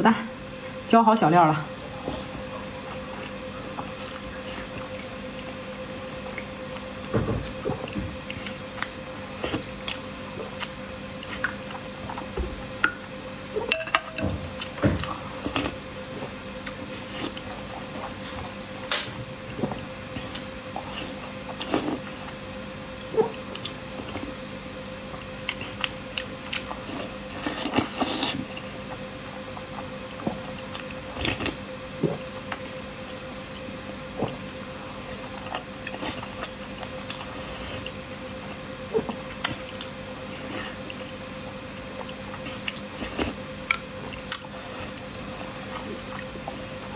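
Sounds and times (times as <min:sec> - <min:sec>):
faint steady hum: 0:00.0 - 0:46.9
wet chewing: 0:02.0 - 0:12.4, 0:25.1 - 0:41.2, 0:41.8 - 0:46.9.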